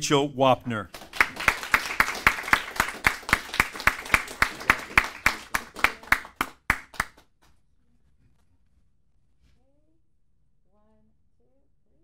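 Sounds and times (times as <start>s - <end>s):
people clapping in rhythm: 0.9s - 7.5s.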